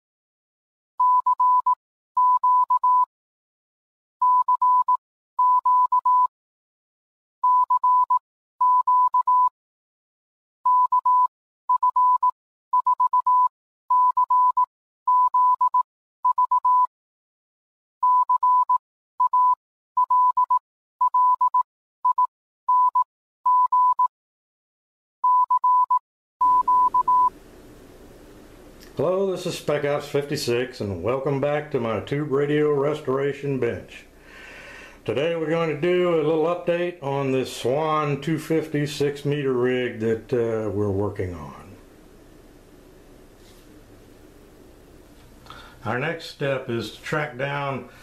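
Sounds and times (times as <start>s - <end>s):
morse code tone: 1.0s - 3.1s, 4.2s - 6.3s, 7.4s - 9.5s, 10.7s - 16.9s, 18.0s - 24.1s, 25.2s - 27.3s.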